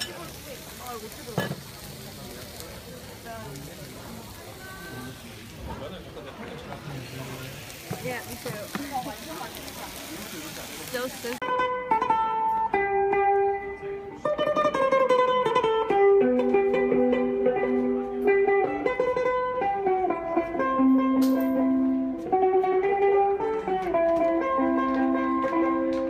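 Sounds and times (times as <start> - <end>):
amplified mandolin melody: 10.9 - 26.0.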